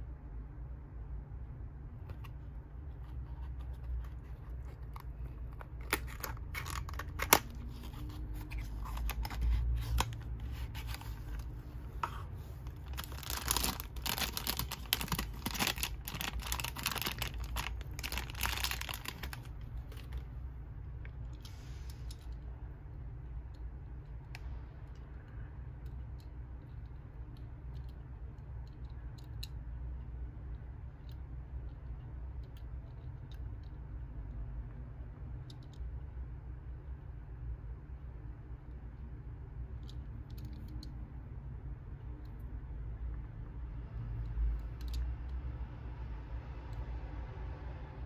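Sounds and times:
cardboard box rustling: 0:05.8 - 0:19.5.

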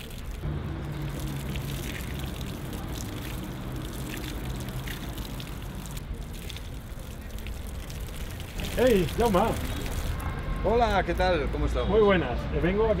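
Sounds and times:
water splashing from tap: 0:00.0 - 0:10.3.

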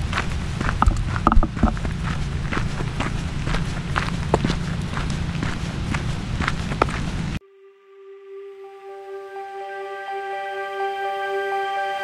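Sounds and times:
footsteps on gravel trail: 0:00.0 - 0:07.4
low background rumble: 0:00.0 - 0:07.4
soft music held note: 0:07.4 - 0:12.0.

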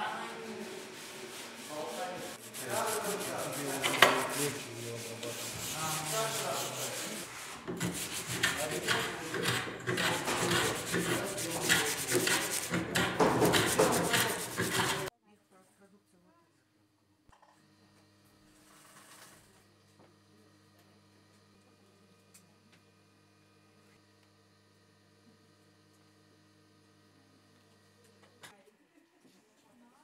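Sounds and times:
hand sanding wood: 0:00.0 - 0:15.1.

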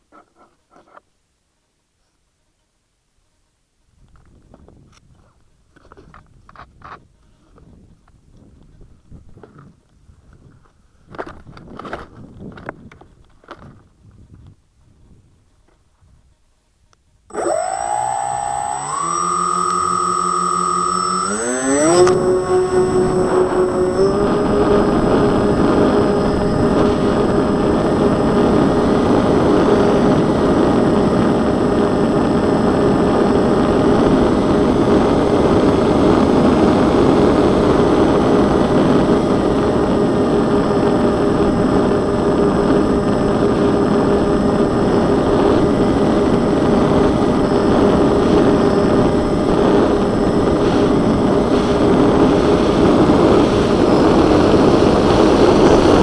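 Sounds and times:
electric motors whining: 0:17.3 - 0:35.8.

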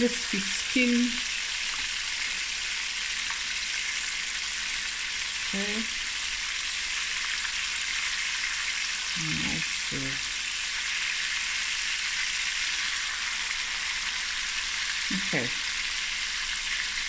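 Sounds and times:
fish sizzling in hot oil: 0:00.0 - 0:17.0.

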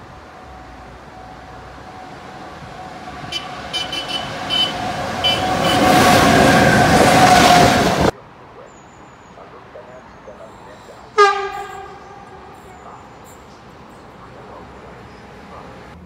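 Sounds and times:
electric train whine and rush: 0:00.0 - 0:08.2, 0:11.2 - 0:16.0.

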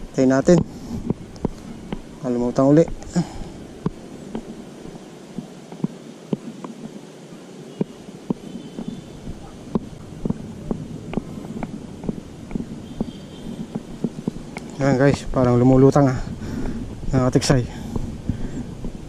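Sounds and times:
quiet outdoor hiss: 0:00.0 - 0:19.0
handling clicks and taps: 0:00.4 - 0:02.1, 0:07.8 - 0:15.3.

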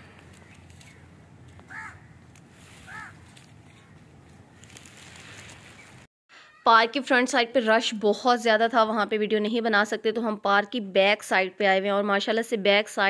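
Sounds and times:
faint crow caws: 0:00.1 - 0:04.2.

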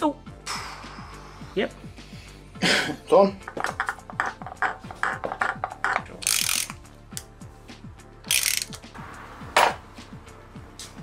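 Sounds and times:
ratchet wrench clicking: 0:05.9 - 0:07.3, 0:08.3 - 0:08.8.

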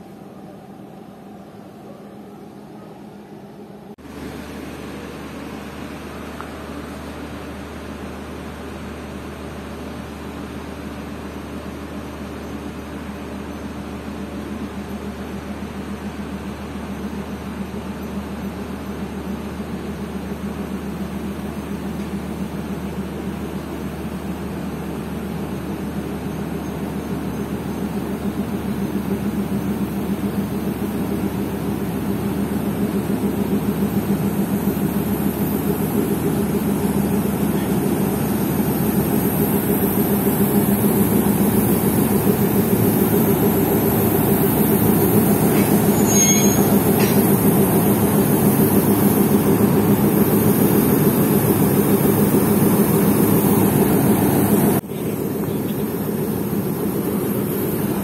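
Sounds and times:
diesel locomotive engine drone: 0:00.0 - 0:58.0
high-pitched squeal: 0:45.3 - 0:47.4.

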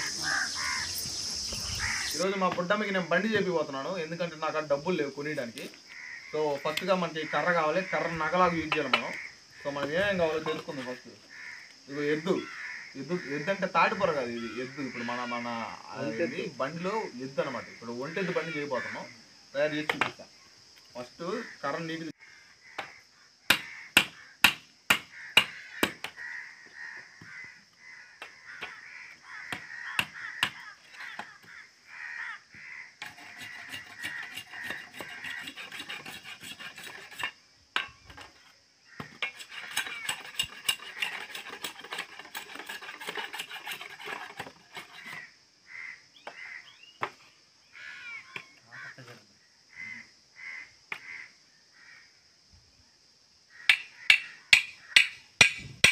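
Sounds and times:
crows cawing: 0:00.0 - 0:02.3, 0:05.8 - 0:16.6, 0:17.5 - 0:19.2, 0:21.2 - 0:37.2, 0:38.9 - 0:52.2, 0:53.5 - 0:55.2
blade shaving stick: 0:33.0 - 0:37.3, 0:39.2 - 0:45.1.

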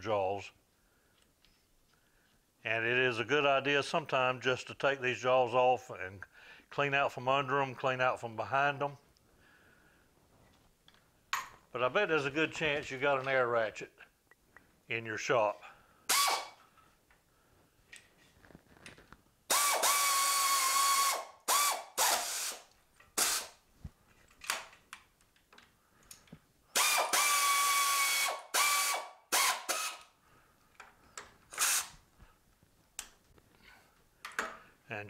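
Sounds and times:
pneumatic air ratchet whining: 0:16.1 - 0:16.6, 0:19.5 - 0:23.6, 0:26.7 - 0:30.1, 0:31.5 - 0:31.9.

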